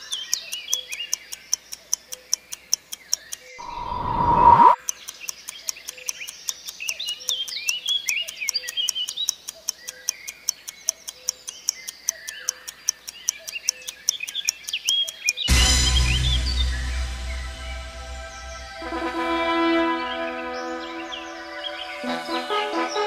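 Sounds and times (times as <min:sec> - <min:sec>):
clock ticking: 0:00.0 - 0:03.7, 0:04.8 - 0:15.6
birds chirping: 0:00.0 - 0:23.0
rising whoosh: 0:03.6 - 0:04.8
brass music sting: 0:15.5 - 0:23.0.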